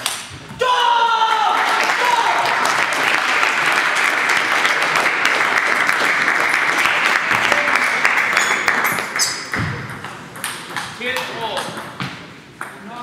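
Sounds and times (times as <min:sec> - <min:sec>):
spectators applauding: 0:01.2 - 0:09.3
table tennis ball bouncing: 0:08.4 - 0:13.0.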